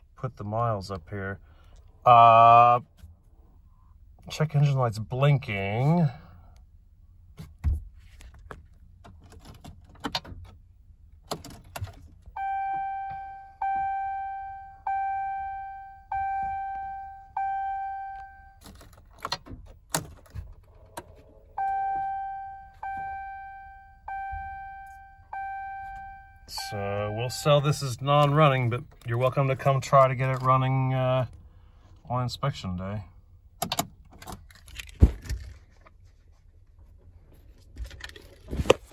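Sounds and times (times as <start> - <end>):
dashboard warning chime dinging: 12.3 - 18.7, 20.8 - 31.0.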